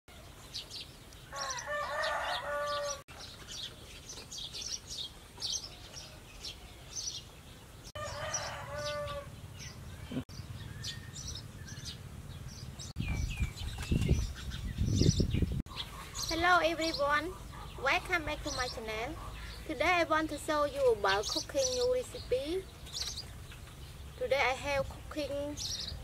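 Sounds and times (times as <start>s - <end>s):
small birds chirping: 0.1s - 26.0s
rooster crowing: 1.3s - 3.0s, 8.0s - 9.4s.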